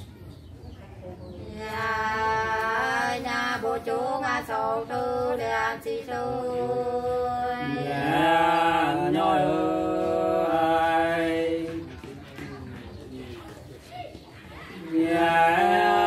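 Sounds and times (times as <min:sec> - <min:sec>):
man singing unaccompanied: 0:02.0 - 0:11.9, 0:14.8 - 0:16.0.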